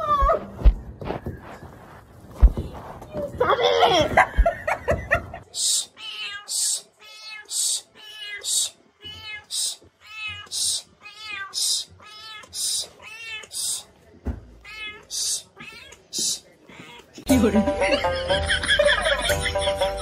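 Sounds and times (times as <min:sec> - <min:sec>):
breathy hiss: 0:07.5 - 0:08.8
kitten meowing: 0:14.6 - 0:17.2.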